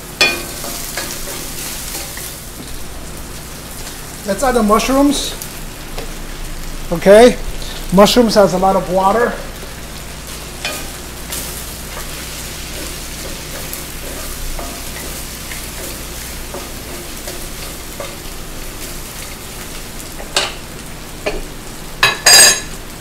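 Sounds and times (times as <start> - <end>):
food sizzling in hot oil: 0.0 - 23.0
spatula knocking on pan: 0.2 - 1.4.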